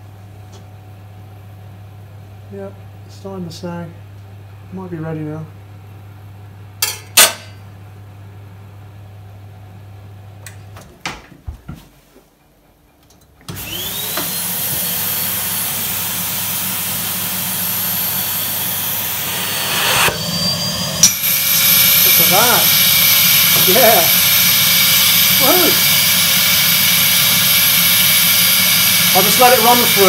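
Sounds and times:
vacuum cleaner running: 0:13.5 - 0:30.0.

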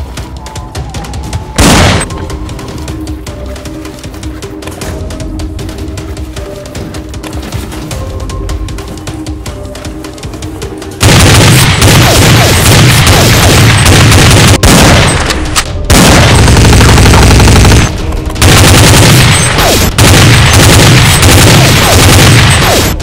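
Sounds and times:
automatic gunfire bursts: 0:15.9 - 0:23.0.

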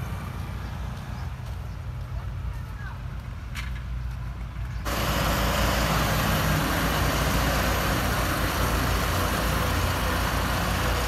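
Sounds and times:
diesel truck engine running: 0:04.8 - 0:11.0.

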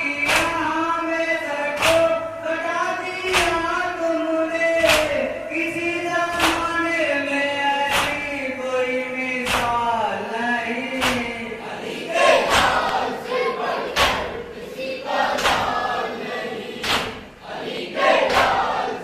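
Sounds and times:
men chanting in unison: 0:00.0 - 0:19.0
hands slapping chests: 0:01.8 - 0:02.0, 0:04.8 - 0:05.2, 0:06.3 - 0:06.7, 0:07.9 - 0:08.3, 0:11.0 - 0:11.3, 0:12.3 - 0:13.2, 0:13.9 - 0:14.3, 0:15.3 - 0:15.8, 0:16.8 - 0:17.2, 0:18.2 - 0:18.7.

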